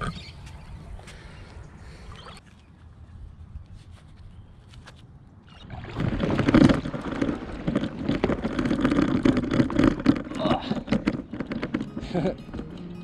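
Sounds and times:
water sloshing against paddleboard: 0:05.5 - 0:12.2
paddleboard knocks: 0:06.2 - 0:12.7.

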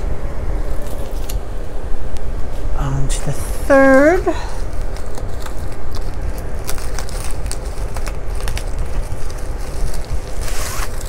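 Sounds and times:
plastic mailer crinkling: 0:04.5 - 0:11.0.

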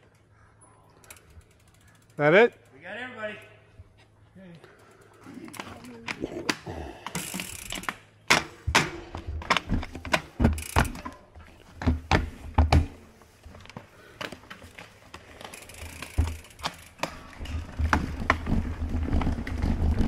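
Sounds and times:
bike drivetrain clicks and rattles: 0:01.0 - 0:03.0, 0:04.7 - 0:06.2, 0:07.0 - 0:20.0
wheels thumping over bumps: 0:07.5 - 0:13.5.

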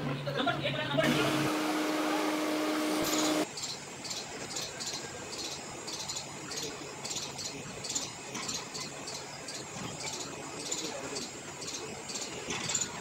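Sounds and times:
insects chirping: 0:03.2 - 0:13.0.

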